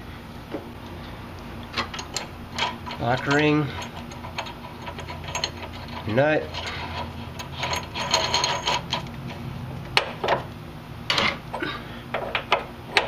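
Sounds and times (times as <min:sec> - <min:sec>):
metal clinking and scraping: 0:01.7 - 0:10.5, 0:11.1 - 0:11.6.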